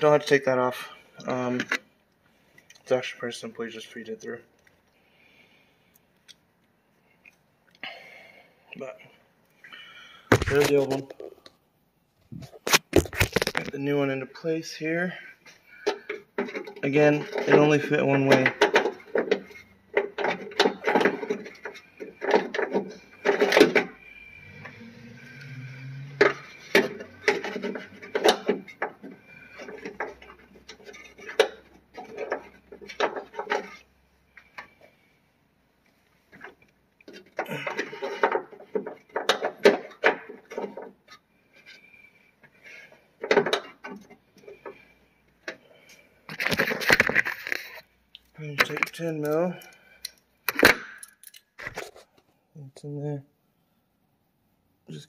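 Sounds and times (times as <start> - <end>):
lock hardware clicking and rattling: 48.4 - 51.8.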